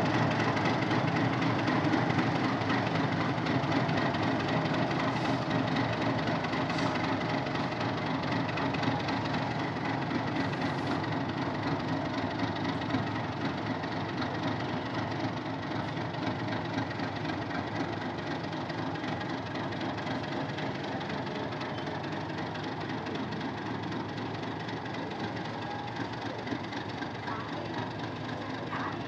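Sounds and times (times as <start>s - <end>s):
diesel locomotive engine running: 0.0s - 29.0s.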